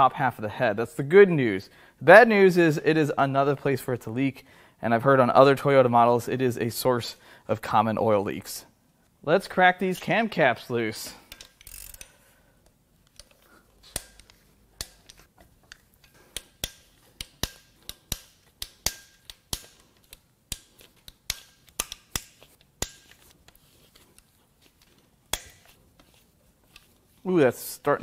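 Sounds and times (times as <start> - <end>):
ratchet clicks: 11.3 - 12.2, 13.9 - 23.0.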